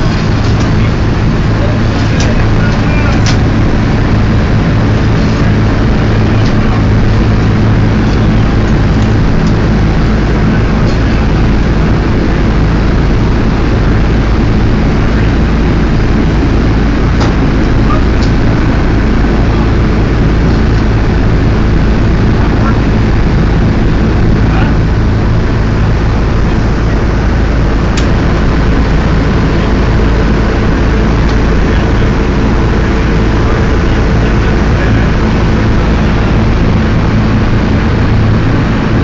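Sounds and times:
propeller plane engines droning: 0:00.0 - 0:39.0.

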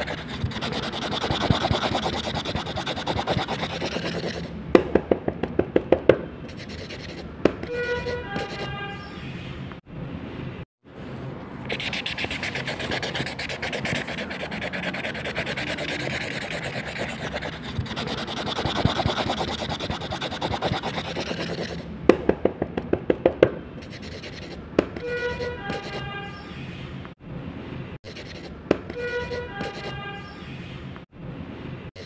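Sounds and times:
brush pen scratching on paper: 0:00.0 - 0:04.5, 0:06.5 - 0:08.7, 0:11.7 - 0:21.9, 0:23.8 - 0:26.1, 0:28.0 - 0:29.9.

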